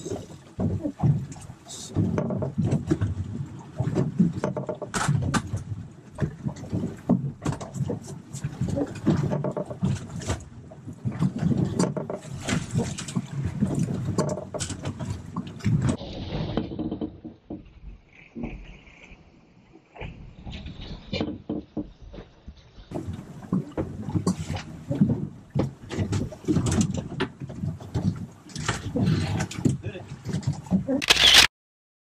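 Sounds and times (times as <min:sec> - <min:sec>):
water splashing: 0:00.0 - 0:17.0
wind: 0:00.0 - 0:31.5.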